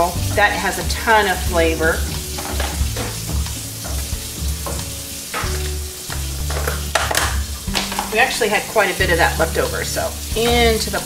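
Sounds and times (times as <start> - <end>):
wet squelching stirring: 0.0 - 11.0
wooden spoon knocking on pot: 2.1 - 8.2.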